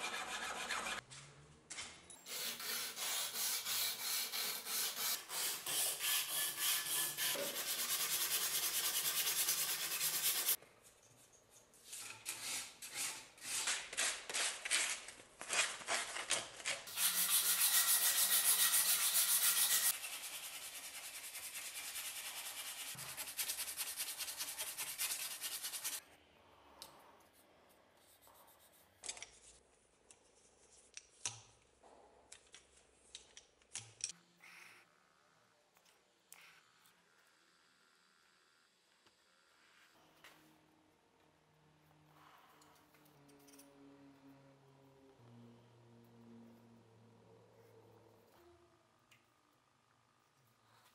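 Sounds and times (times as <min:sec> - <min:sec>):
hand sanding strokes: 0:02.3 - 0:10.6, 0:16.9 - 0:26.0.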